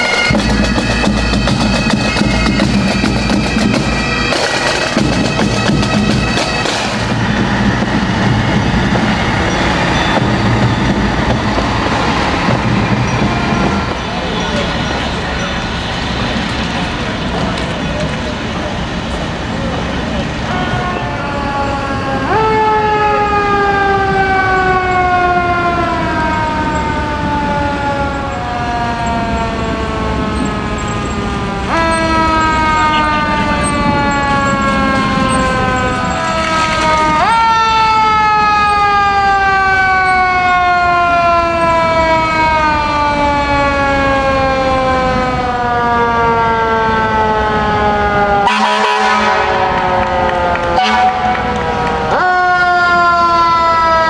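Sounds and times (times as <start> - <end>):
fire engine sirens wailing: 0.0 - 54.0.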